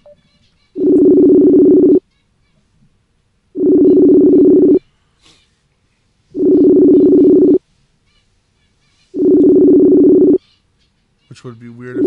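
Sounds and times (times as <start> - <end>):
phone ringing tone: 0.8 - 2.0, 3.6 - 4.8, 6.4 - 7.6, 9.2 - 10.4.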